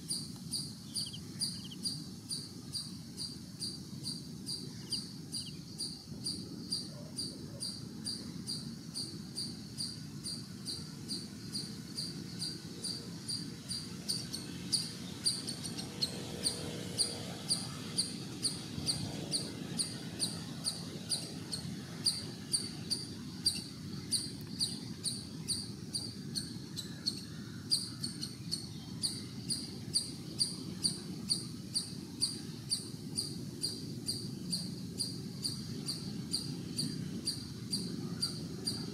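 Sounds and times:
cricket chirping: 0.0s - 38.9s
low background noise: 0.0s - 38.9s.

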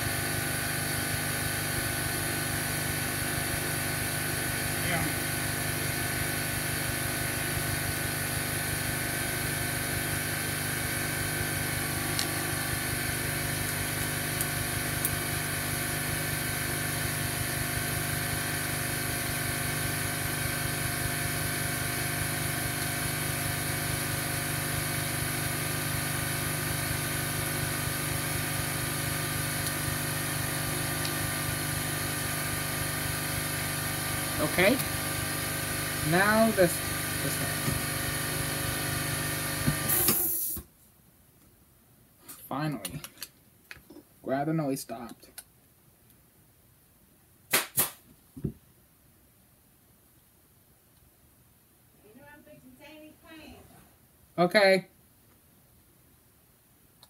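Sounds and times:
air compressor motor running: 0.0s - 40.6s.

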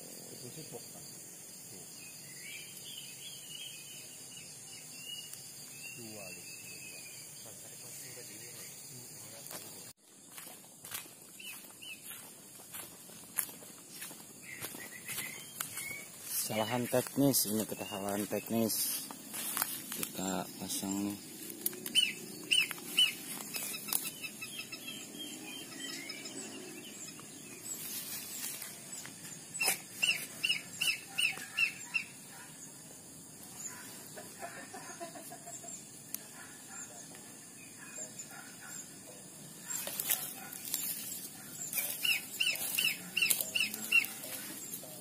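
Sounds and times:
sharp high bird chirps: 1.9s - 9.0s, 14.4s - 32.8s, 39.6s - 45.0s.

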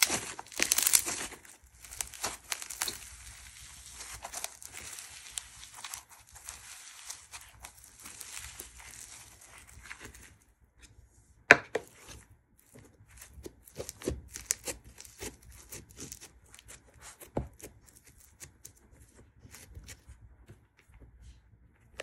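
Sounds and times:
slime crackling and popping: 0.0s - 10.4s, 11.8s - 18.8s.

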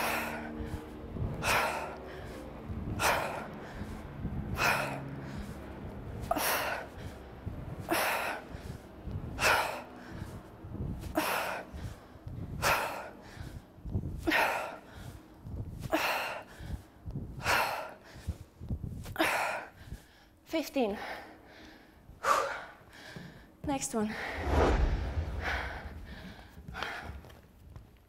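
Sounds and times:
sharp forceful breaths: 24.1s - 27.2s.

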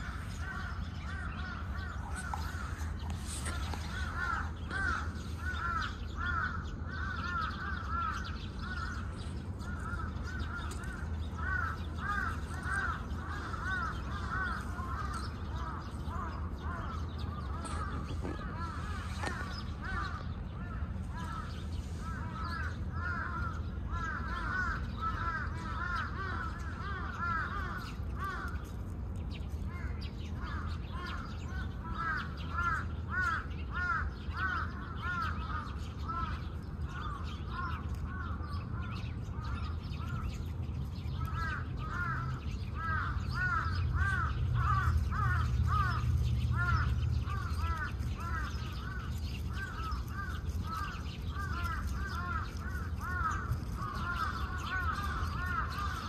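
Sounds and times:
birds calling: 0.0s - 56.0s
low steady rumble: 0.0s - 56.0s.

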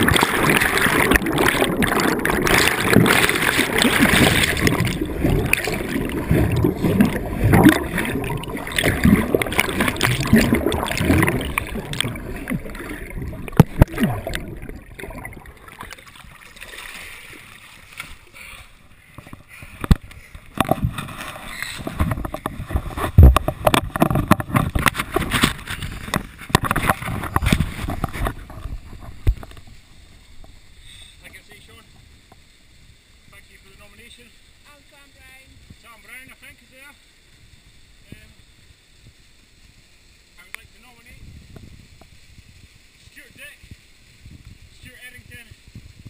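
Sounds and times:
river water splashing and gurgling: 0.0s - 30.6s.

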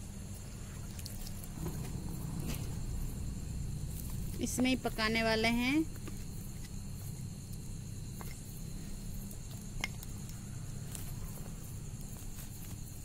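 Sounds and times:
faint fire crackles: 0.0s - 13.0s
low rumble: 1.5s - 6.0s.

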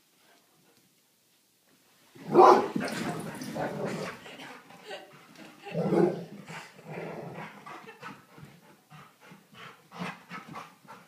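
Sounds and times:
dog growling and panting: 2.7s - 11.0s.

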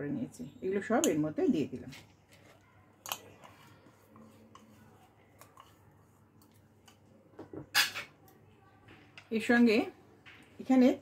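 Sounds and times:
bowl tapping and scraping bowl: 1.9s - 8.2s.

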